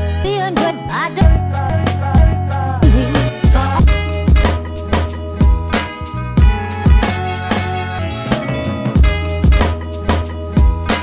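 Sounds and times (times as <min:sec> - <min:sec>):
heavy low drum beat: 0:02.2 - 0:05.7.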